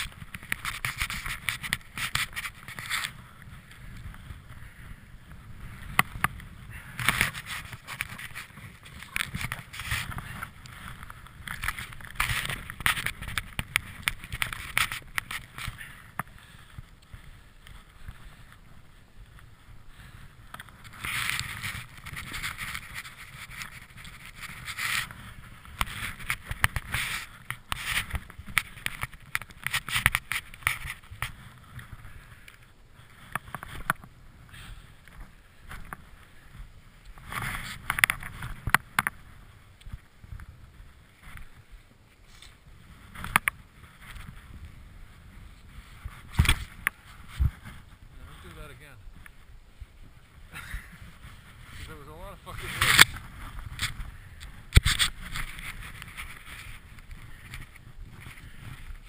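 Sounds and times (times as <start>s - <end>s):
scraping and sharp clicks: 0.0s - 3.2s, 5.9s - 16.3s, 20.5s - 31.5s, 52.5s - 59.0s
skis swishing through snow: 0.0s - 59.0s.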